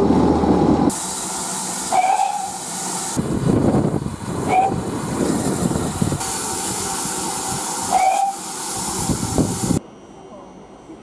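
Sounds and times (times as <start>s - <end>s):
moving train rumble: 0.0s - 9.8s
steam hissing: 0.9s - 9.8s
steam locomotive whistle: 1.9s - 2.7s, 7.8s - 8.5s.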